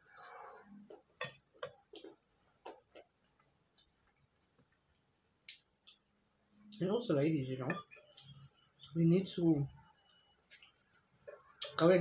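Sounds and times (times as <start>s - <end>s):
eating clicks and smacks: 1.8s - 6.1s.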